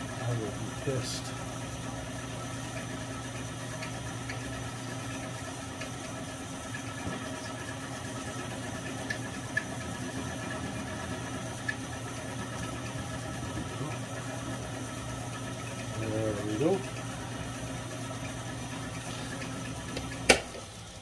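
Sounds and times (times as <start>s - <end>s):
milling machine motor hum: 0.0s - 21.0s.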